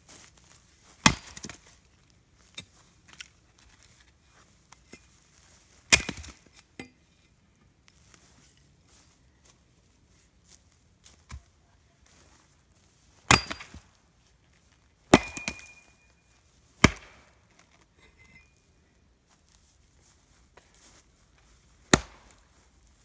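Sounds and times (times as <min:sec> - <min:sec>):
axe chopping firewood: 0:01.0 - 0:01.7, 0:05.9 - 0:07.0, 0:13.2 - 0:13.8, 0:15.1 - 0:15.9, 0:16.8 - 0:17.3, 0:21.9 - 0:22.4.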